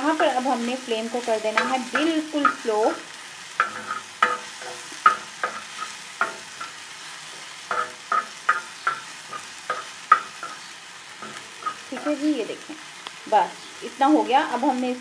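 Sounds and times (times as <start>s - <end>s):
low sizzle of frying: 0.0s - 15.0s
utensil scraping a griddle: 3.6s - 12.2s.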